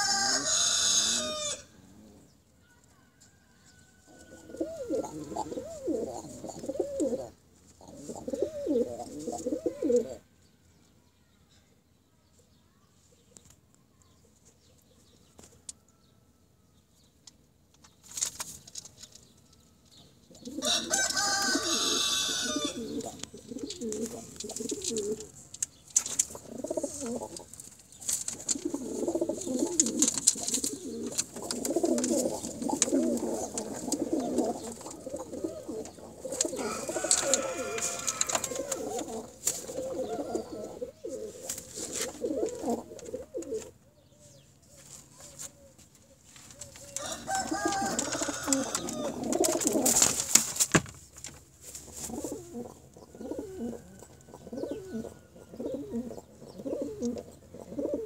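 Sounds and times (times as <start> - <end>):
pigeons cooing: 0.0 - 2.4, 3.9 - 10.2, 20.3 - 50.4, 51.8 - 58.0.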